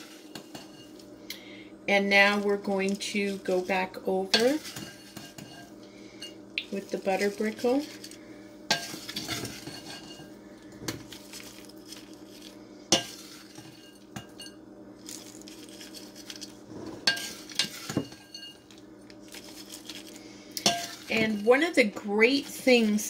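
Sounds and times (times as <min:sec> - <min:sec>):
crumbs sprinkling: 0:11.0 - 0:13.6, 0:15.0 - 0:16.6.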